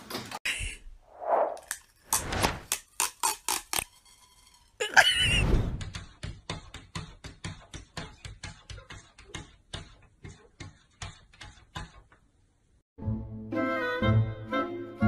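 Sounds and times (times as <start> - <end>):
music: 13.0 - 15.0.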